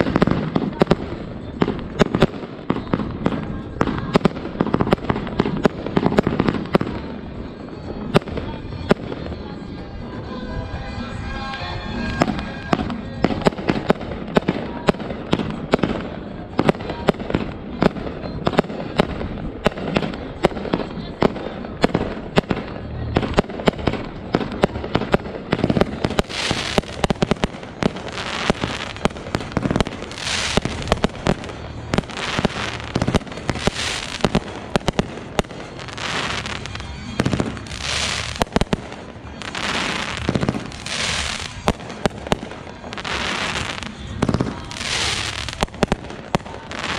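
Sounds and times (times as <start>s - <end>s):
firework bangs: 0.0s - 46.9s
hissing firework bursts: 12.1s - 46.9s.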